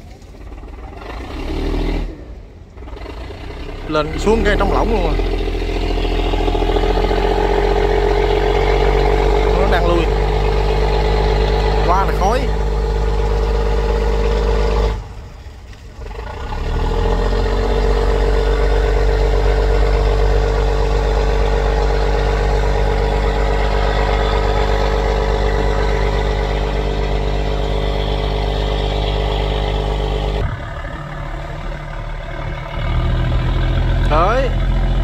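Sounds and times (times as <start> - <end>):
barge engines running: 0.0 - 35.0.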